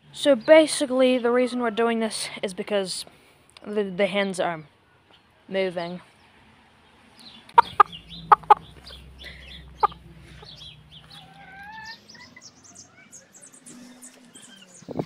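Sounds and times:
hens clucking: 7.5 - 12.6
hens gliding calls: 7.5 - 13.1.

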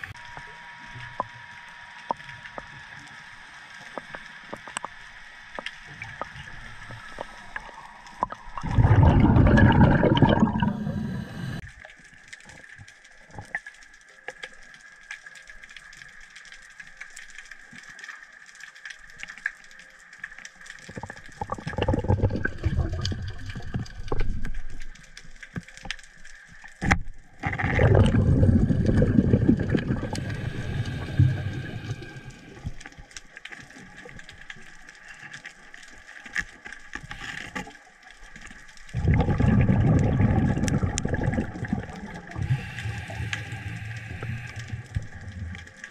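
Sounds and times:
faint underwater crackle: 0.0 - 45.9
rushing water turbulence: 8.2 - 11.6, 27.4 - 32.8, 38.9 - 45.9.

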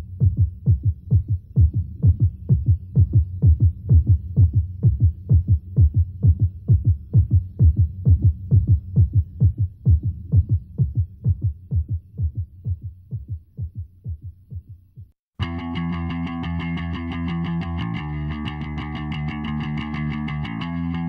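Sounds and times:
deep pulsing beat: 0.0 - 21.0
sustained guitar chord: 15.4 - 21.0.

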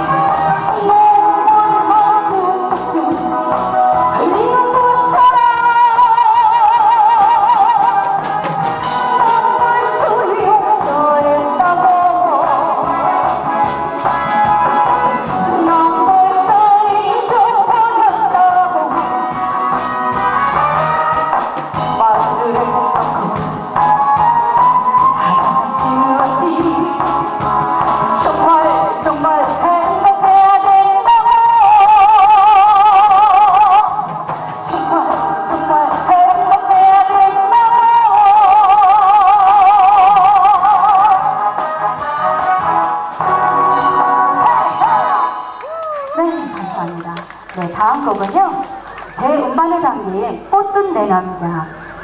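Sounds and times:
woman singing: 0.0 - 13.8, 14.5 - 19.5, 21.8 - 41.4
backing track music: 0.0 - 52.0
instrumental accompaniment: 39.8 - 49.8.

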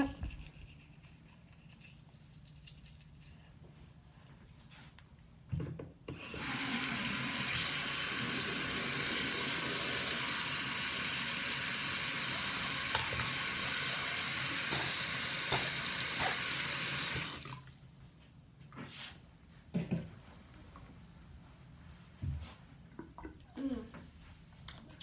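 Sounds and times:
tap running into sink: 14.6 - 16.5.

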